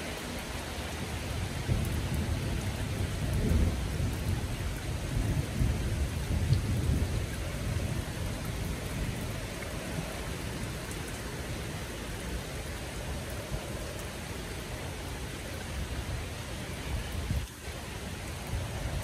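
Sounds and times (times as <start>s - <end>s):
rain falling on leafy trees: 0.0s - 19.0s.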